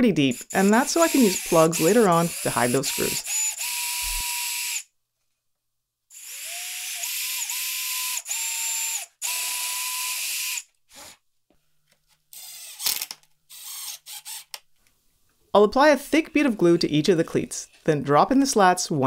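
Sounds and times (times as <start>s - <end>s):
cordless drill boring into wood: 0.3s - 4.8s, 6.1s - 11.2s, 12.4s - 14.5s
cordless driver setting a screw: 0.5s - 4.4s.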